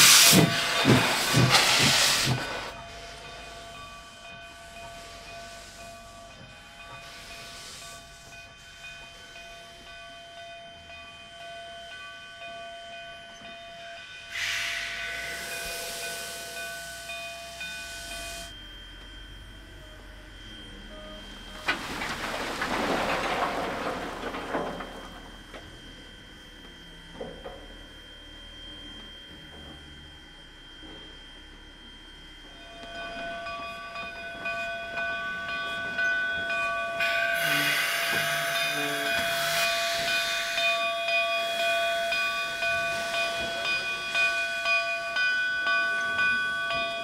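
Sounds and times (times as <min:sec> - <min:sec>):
steam locomotive hissing steam: 0:00.0 - 0:10.2, 0:14.2 - 0:18.6, 0:32.4 - 0:47.0.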